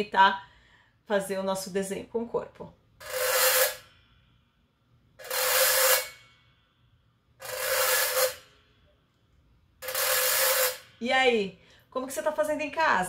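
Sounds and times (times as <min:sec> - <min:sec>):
metal scraper rasping on springs: 0:03.0 - 0:04.0, 0:05.2 - 0:06.4, 0:07.4 - 0:08.7, 0:09.8 - 0:11.0.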